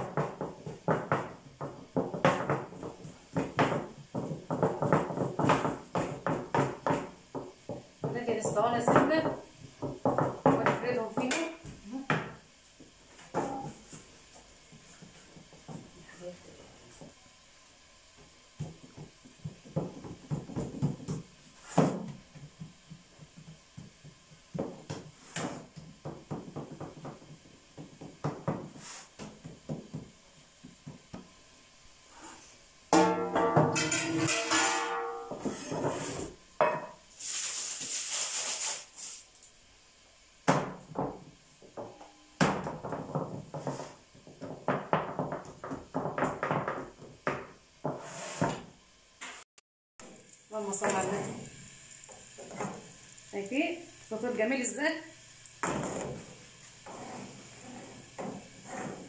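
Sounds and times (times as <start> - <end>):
baking trays knocking on wooden table: 0.0 - 11.5, 18.6 - 30.1, 40.4 - 48.6
dough being patted: 0.0 - 12.4, 18.2 - 31.3.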